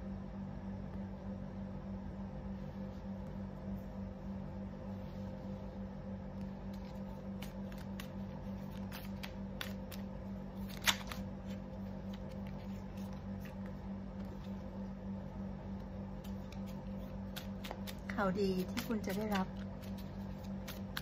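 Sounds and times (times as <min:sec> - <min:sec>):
steady low hum: 0:00.0 - 0:21.0
cards clicking on table: 0:08.7 - 0:11.2.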